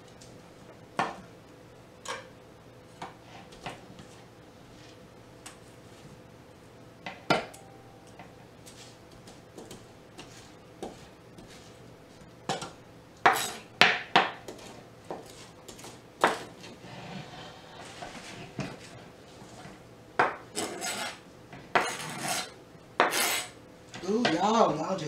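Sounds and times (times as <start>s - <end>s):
knife scraping cutting board: 9.6s - 11.8s, 13.3s - 13.6s, 14.5s - 19.8s, 20.5s - 23.6s.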